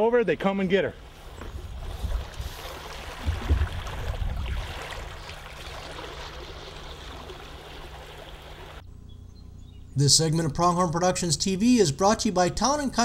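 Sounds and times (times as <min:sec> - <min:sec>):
stream rippling over riffle: 0:01.6 - 0:08.8.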